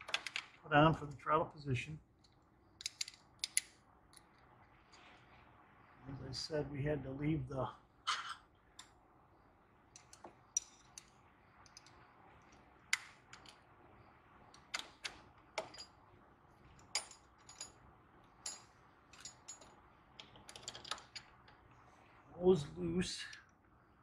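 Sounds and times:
hex wrench clicking on bolt: 2.8 - 3.7.

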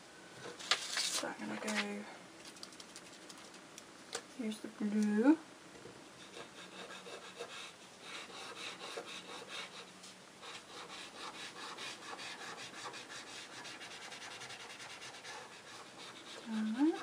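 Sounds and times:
pencil scribbling on paper: 6.2 - 17.0.

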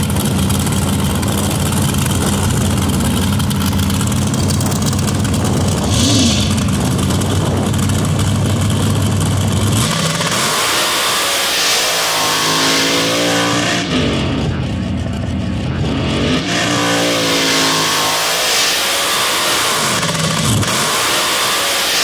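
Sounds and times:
dragster engine idling: 0.0 - 10.5, 13.9 - 16.1, 19.0 - 20.7
engine revving up: 5.4 - 14.8, 15.6 - 22.0.

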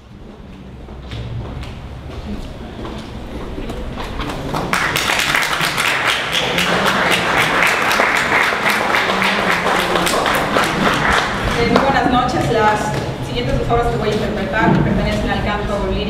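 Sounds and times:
audience applauding: 3.6 - 13.2.

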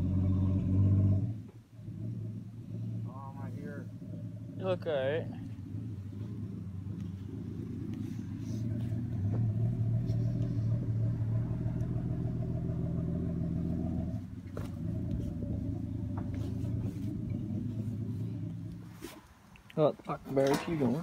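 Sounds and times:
car engine idling: 0.0 - 21.0.

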